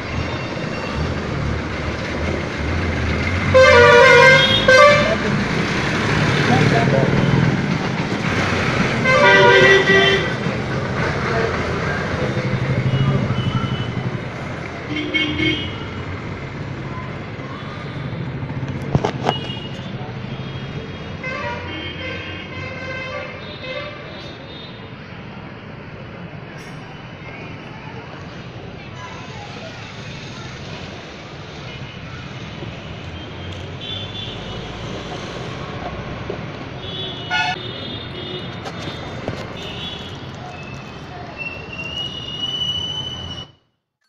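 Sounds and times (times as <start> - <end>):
road traffic hum: 0.0 - 43.8
vehicle horn toot: 36.8 - 38.5.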